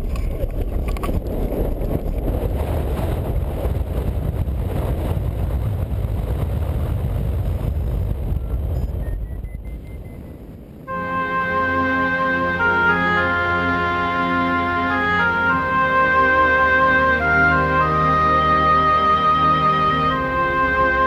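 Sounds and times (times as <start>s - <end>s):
wind rumbling on microphone: 0.0s - 12.9s, 13.8s - 21.0s
music with sustained notes: 10.9s - 21.0s.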